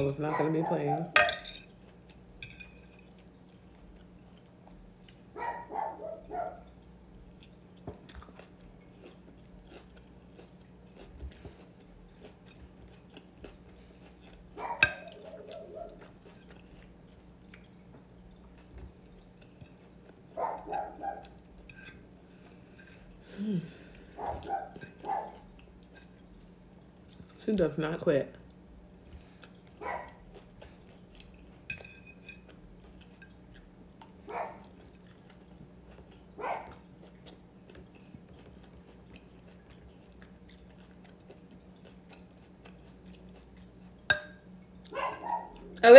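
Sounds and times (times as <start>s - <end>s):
quiet chewing: 0.0s - 27.4s, 28.3s - 45.8s
faint steady hum: 0.0s - 45.9s
dog barking and yipping: 0.2s - 1.2s, 5.4s - 6.7s, 14.6s - 16.0s, 20.4s - 21.4s, 24.2s - 25.5s, 29.8s - 30.2s, 34.3s - 34.7s, 36.4s - 36.8s, 44.9s - 45.8s.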